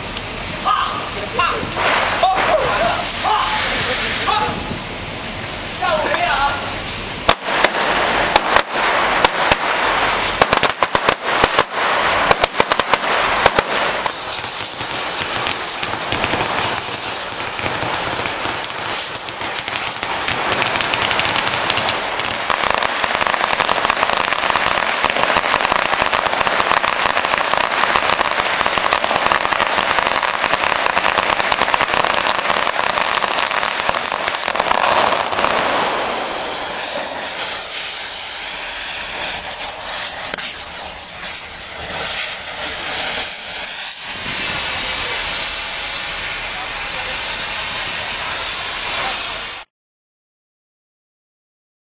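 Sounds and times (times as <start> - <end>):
firecrackers crackling: 0.0 - 49.7.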